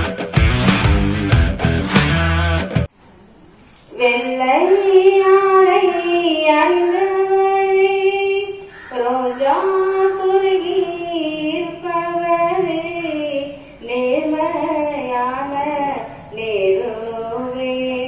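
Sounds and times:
woman singing unaccompanied: 3.9 - 18.0.

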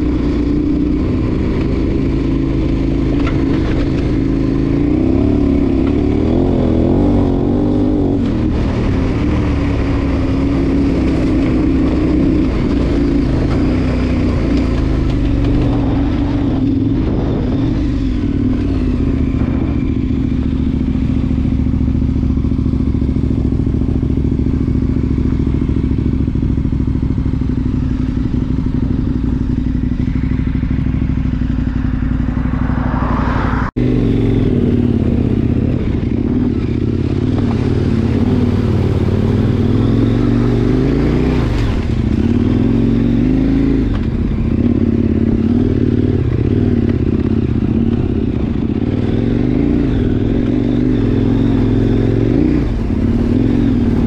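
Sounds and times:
wind noise: 0.0 - 24.7
motorcycle engine running: 0.0 - 54.0.

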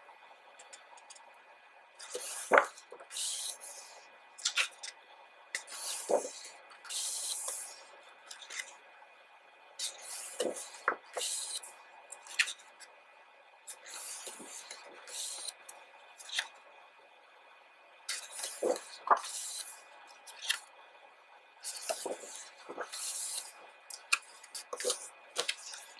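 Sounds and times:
pages turning rustle: 2.0 - 2.8, 5.6 - 6.4, 9.8 - 11.5, 18.1 - 19.7, 21.6 - 25.8.

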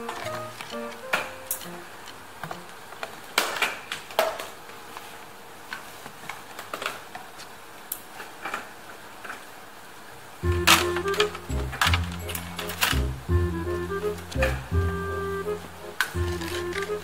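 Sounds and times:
paperboard box rustling: 16.1 - 17.0.

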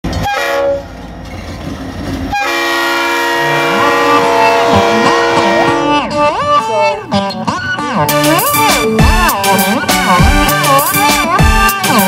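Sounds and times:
diesel locomotives rumbling past: 0.0 - 6.7
held chord: 3.0 - 12.0
bending gliding melody: 3.3 - 12.0.

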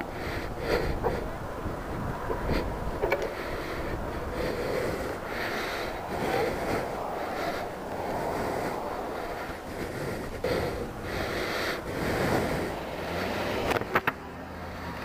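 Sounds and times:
wind noise on microphone: 0.0 - 14.1.

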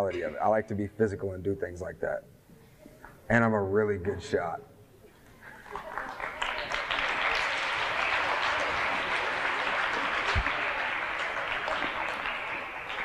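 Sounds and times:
audience applause: 5.6 - 13.0.

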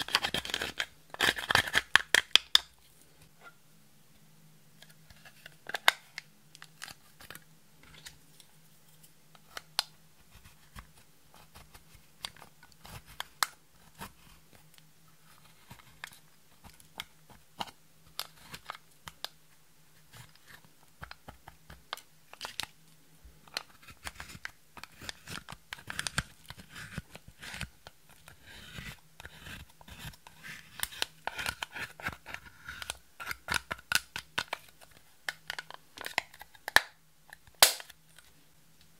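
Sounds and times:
spatula scraping makeup compact: 23.5 - 36.6.

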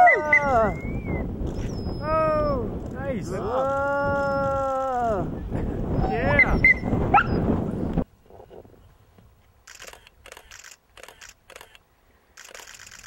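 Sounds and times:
camera shutter clicks: 9.6 - 11.8, 12.4 - 13.0.

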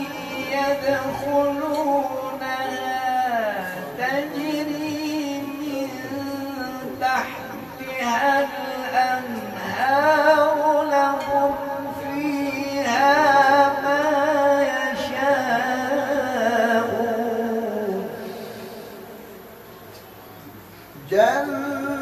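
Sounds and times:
man chanting melodically: 0.0 - 19.2, 21.0 - 22.0.

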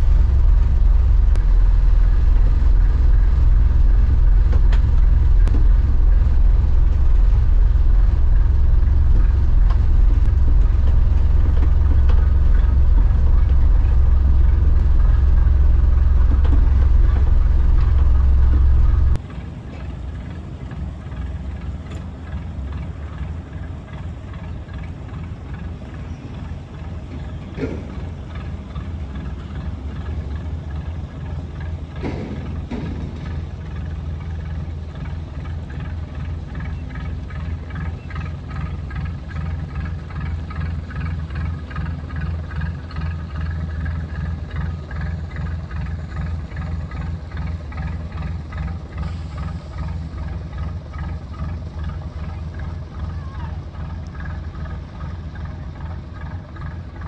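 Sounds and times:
diesel boat engine rumbling: 0.0 - 57.0.

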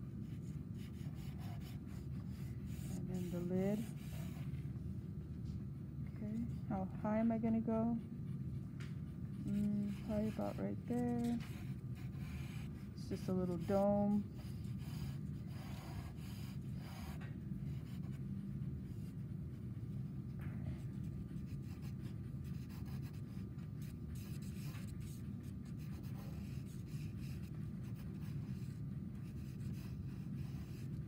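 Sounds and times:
low room hum: 0.0 - 31.0
pencil scratching on paper: 0.3 - 4.5, 9.4 - 18.2, 21.0 - 31.0.

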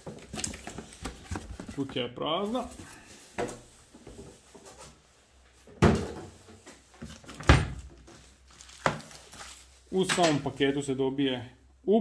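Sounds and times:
faint packaging rustling: 0.0 - 5.0, 6.6 - 10.8.

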